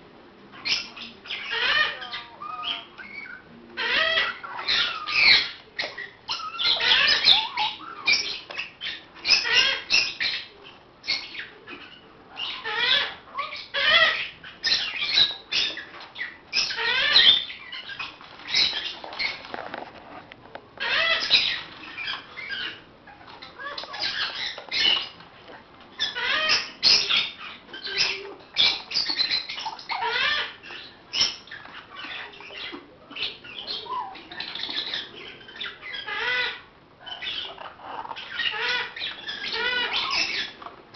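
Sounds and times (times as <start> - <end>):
parrots squawking and chattering: 0.4 - 40.9.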